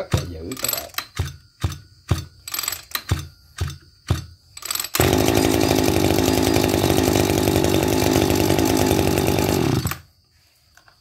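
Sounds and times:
recoil starter pulls: 4.6s - 10.0s
brush cutter engine running: 4.9s - 10.1s.

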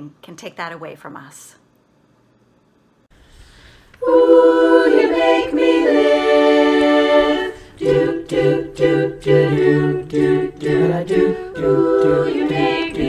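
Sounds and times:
women's chorus singing in harmony: 4.0s - 13.0s.

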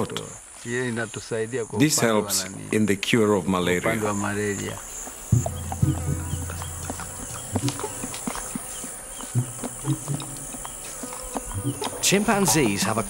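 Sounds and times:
insect chorus buzzing: 0.0s - 13.0s
soft knocks: 5.3s - 8.6s.

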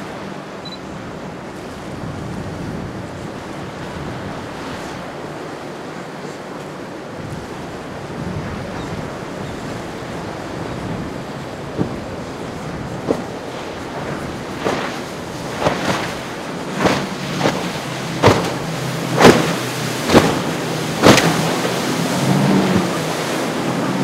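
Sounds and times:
boat engines droning: 0.0s - 24.0s
waves slapping and splashing: 0.0s - 24.0s.

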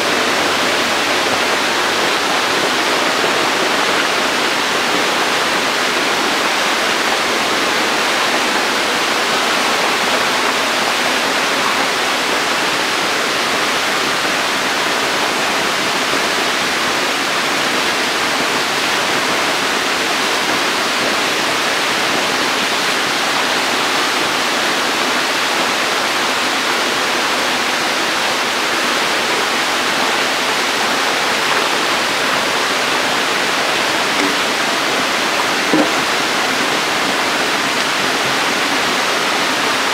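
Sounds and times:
water rushing and splashing: 0.0s - 39.9s.

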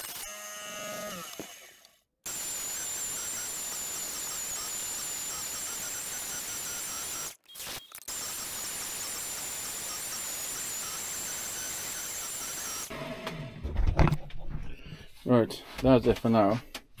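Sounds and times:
bandsaw motor winding down: 0.0s - 7.4s, 8.1s - 13.3s
bandsaw running with high whine: 2.3s - 7.4s, 8.1s - 13.1s.

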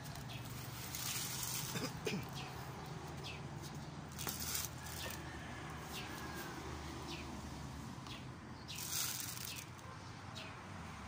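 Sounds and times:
rustling: 0.0s - 2.0s, 4.1s - 5.2s, 8.8s - 9.8s
small birds chirping: 0.0s - 11.0s.

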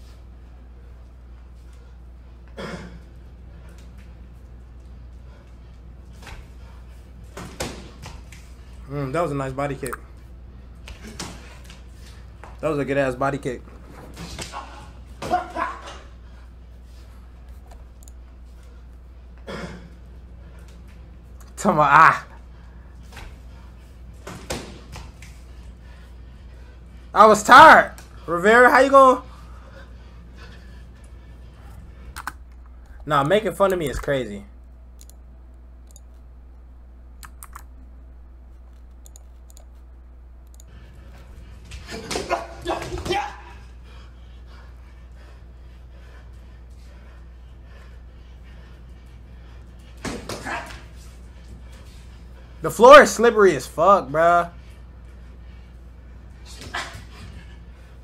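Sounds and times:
low steady hum: 0.0s - 58.0s
computer input clicks: 37.2s - 37.7s.

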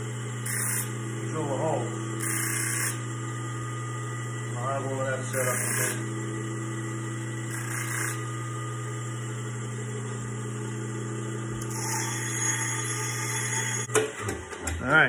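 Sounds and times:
bench grinder motor humming: 0.0s - 14.0s
metal grinding bursts: 5.2s - 6.0s.

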